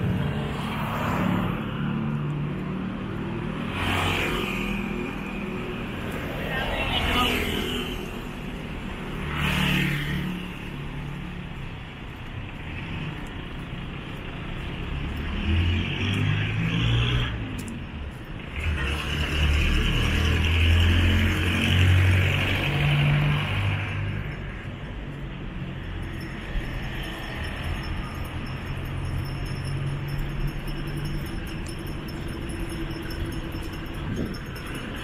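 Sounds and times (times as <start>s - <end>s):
motorcycles passing: 0.0s - 10.8s, 18.5s - 35.0s
cars passing: 0.0s - 35.0s.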